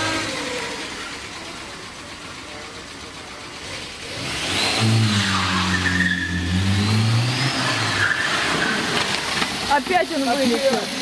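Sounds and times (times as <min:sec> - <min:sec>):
car engine revving: 0:00.0 - 0:11.0
tyres squealing: 0:05.2 - 0:06.7, 0:07.5 - 0:09.9.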